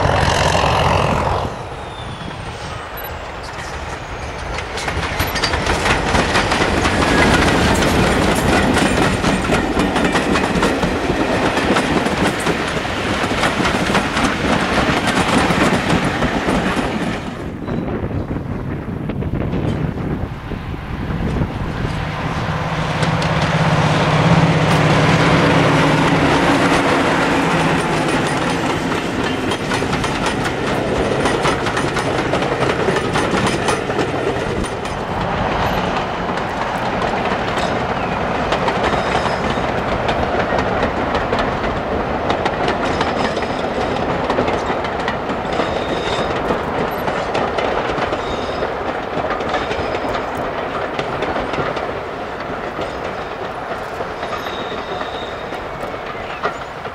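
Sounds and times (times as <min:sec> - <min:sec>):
diesel locomotive engine: 0:00.0 - 0:56.9
train wheels clattering over rail joints: 0:02.9 - 0:17.8, 0:21.2 - 0:56.9.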